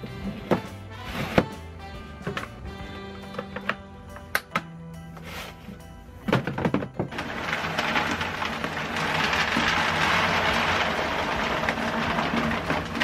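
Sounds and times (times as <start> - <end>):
kibble pouring into plastic bin: 7.1 - 13.0.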